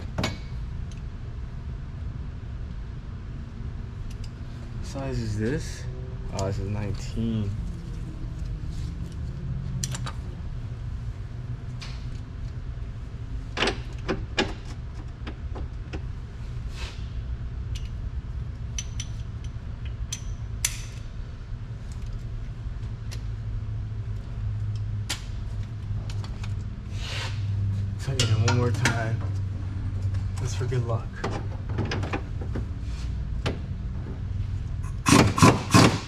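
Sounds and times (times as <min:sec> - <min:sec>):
steady low hum: 0:00.0 - 0:36.0
metal tools clinking on bolts: 0:28.0 - 0:29.2.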